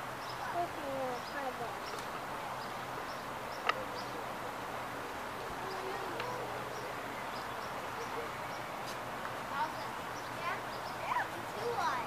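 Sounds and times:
faint distant voices: 0.0s - 12.0s
steady background hiss: 0.0s - 12.0s.

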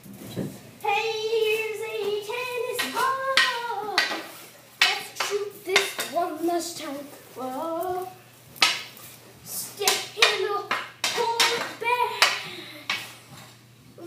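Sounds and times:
person singing wordlessly: 0.8s - 8.2s, 9.5s - 12.6s
hockey stick clacking on concrete: 2.8s - 6.2s, 8.6s - 9.0s, 9.8s - 13.1s.

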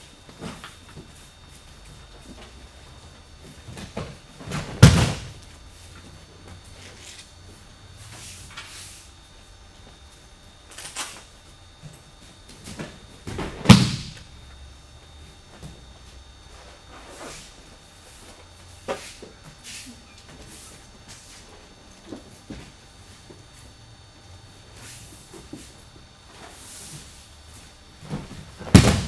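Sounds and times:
body thudding onto mats: 3.4s - 5.6s, 12.5s - 14.2s, 28.0s - 29.0s.

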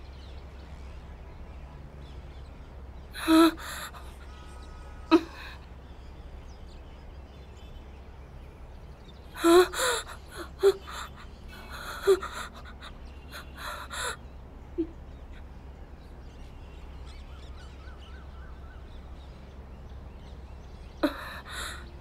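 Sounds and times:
baby crying and gasping: 3.2s - 4.1s, 5.1s - 5.6s, 9.4s - 14.2s, 21.0s - 21.9s.

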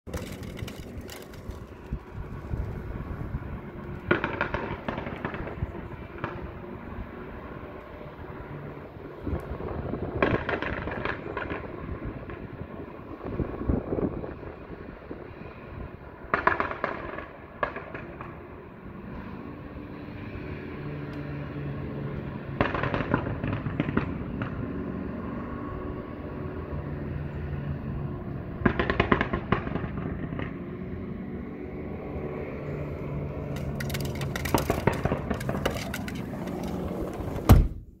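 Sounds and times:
loud thump: 37.2s - 38.0s.

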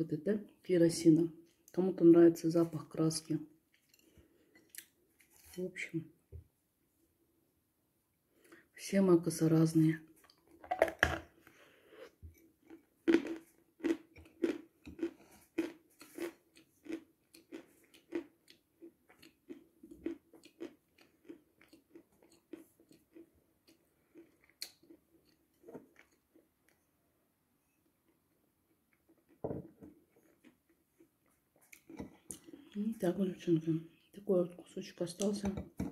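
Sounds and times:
chalk crunching when chewed: 12.6s - 26.8s.

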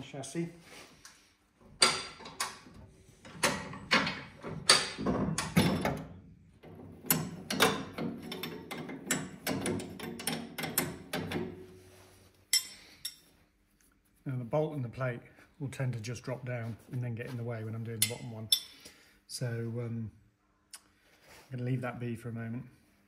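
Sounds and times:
spanner clicking on bolt: 7.0s - 11.4s.

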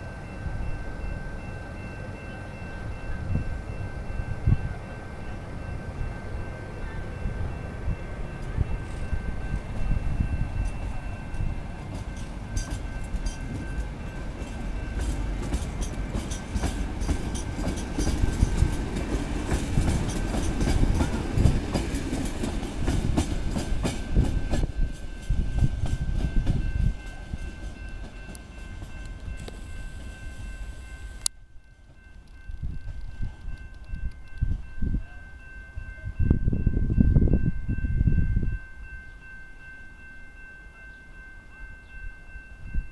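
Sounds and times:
train wheels clicking over rail joints: 10.6s - 30.2s.

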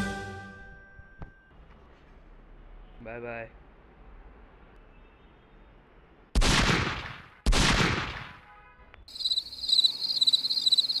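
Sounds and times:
brief tone: 0.5s - 1.6s
high-pitched chirping: 9.1s - 11.0s.

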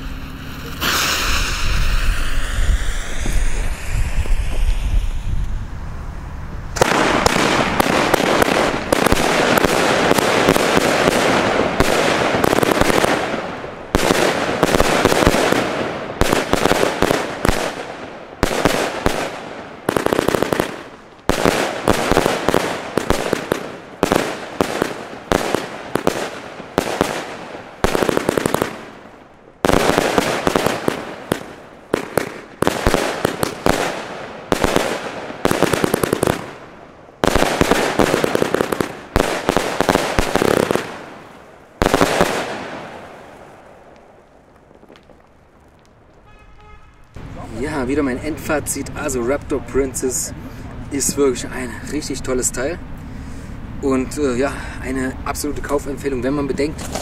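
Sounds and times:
firework cake firing bangs: 0.7s - 3.6s, 6.8s - 43.5s.

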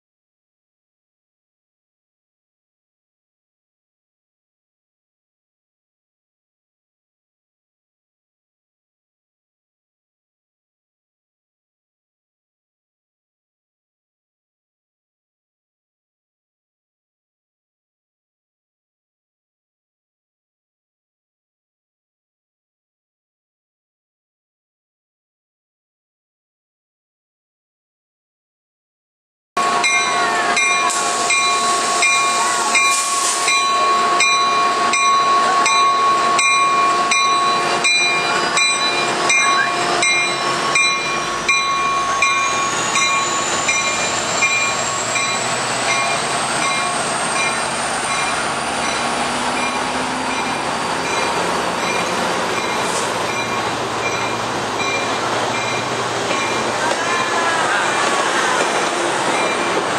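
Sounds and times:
train bell clanging: 29.6s - 59.9s
train running noise: 29.6s - 59.9s.

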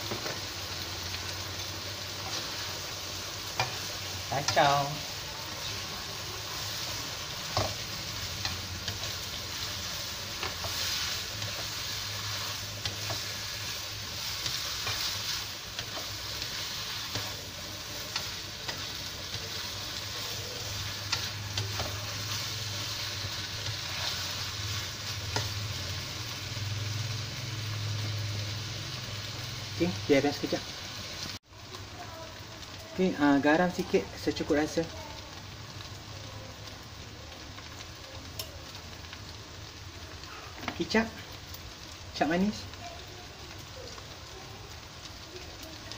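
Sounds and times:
food sizzling in a wok: 0.0s - 45.9s
spatula scraping and tapping pan: 7.5s - 9.7s.

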